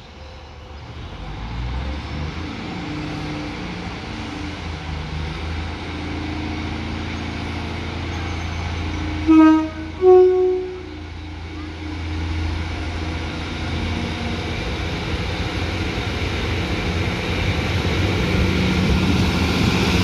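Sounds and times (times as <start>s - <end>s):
train engine droning: 0.0s - 20.0s
two-tone train horn: 9.1s - 12.2s.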